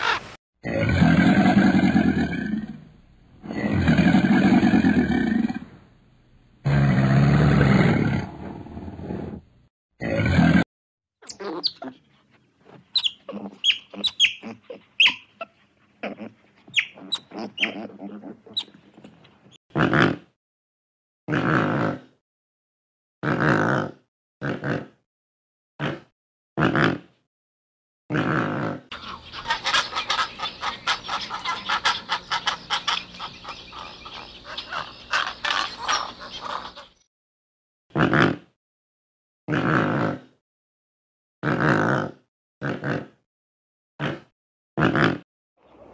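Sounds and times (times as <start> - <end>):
sea otter squeaky chirps: 11.2 - 12.0, 12.9 - 15.6, 16.7 - 17.9, 29.0 - 37.0
birds clicking and chattering: 11.3 - 19.6, 28.9 - 37.0.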